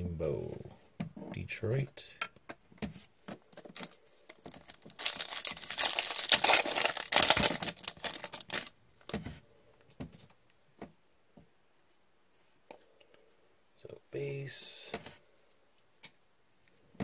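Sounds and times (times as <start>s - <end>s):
foil wrapper tearing and crinkling: 3.6s - 8.7s.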